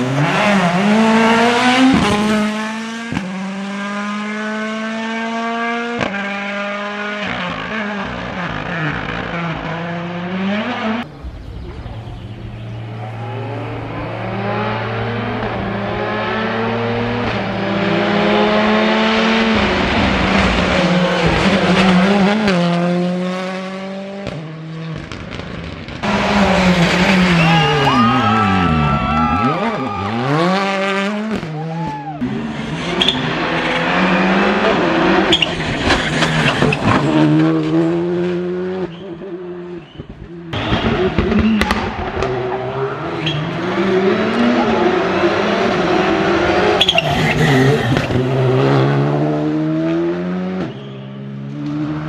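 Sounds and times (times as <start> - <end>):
rally car engines revving: 0.0 - 52.0.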